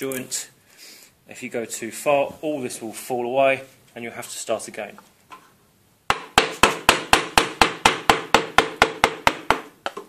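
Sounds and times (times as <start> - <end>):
mallet tapping chisel: 6.1 - 10.0.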